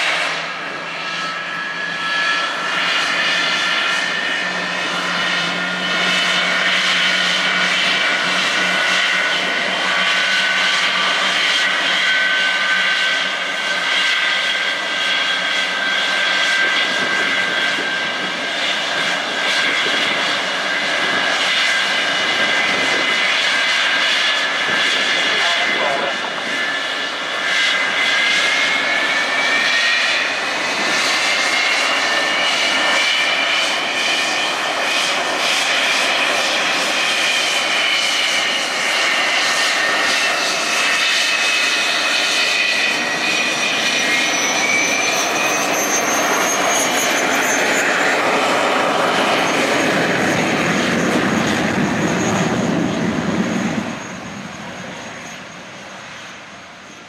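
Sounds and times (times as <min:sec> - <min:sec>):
high engine whine: 0:00.0 - 0:57.0
jet engines roaring: 0:00.0 - 0:57.0.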